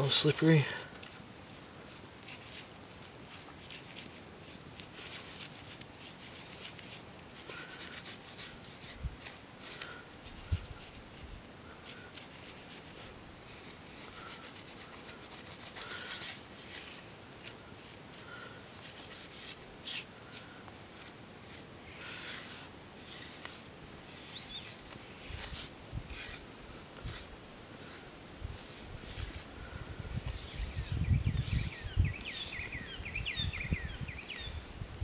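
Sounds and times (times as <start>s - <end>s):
fingers rubbing paste into wood: 28.6s - 29.4s, 30.2s - 33.6s.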